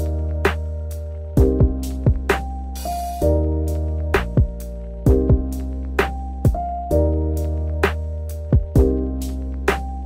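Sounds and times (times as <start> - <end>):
steady drum beat: 0.0 - 3.3, 4.2 - 6.7, 7.9 - 9.0
deep bass: 0.0 - 10.0
held keyboard chords: 0.0 - 10.0.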